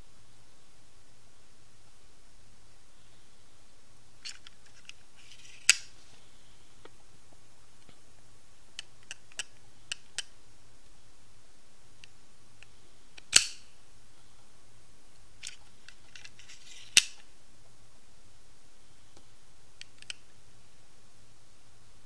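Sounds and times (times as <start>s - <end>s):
knife blade metallic snap: 13.3s - 13.6s.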